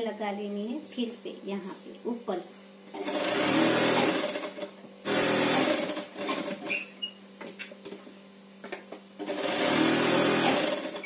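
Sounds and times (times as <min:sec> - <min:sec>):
sewing machine stitching: 0:03.0 - 0:06.8, 0:09.2 - 0:11.0.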